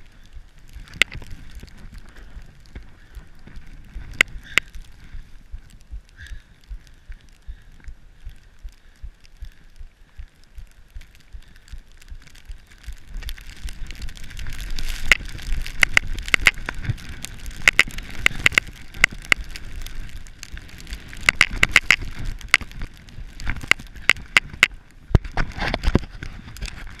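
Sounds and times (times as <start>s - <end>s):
snow and wind rushing: 0.0s - 27.0s
sharp clicks and knocks: 14.8s - 19.6s, 21.2s - 26.8s.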